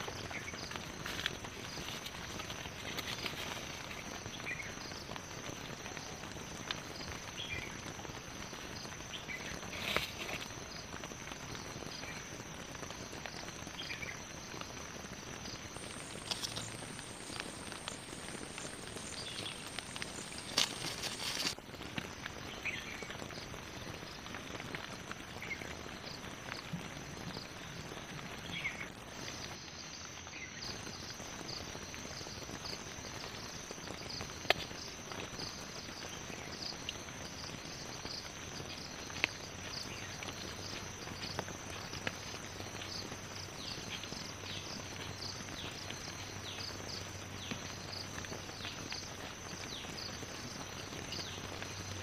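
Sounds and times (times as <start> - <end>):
high insect trill: 0.0 - 52.0
soft hiss: 13.0 - 21.6.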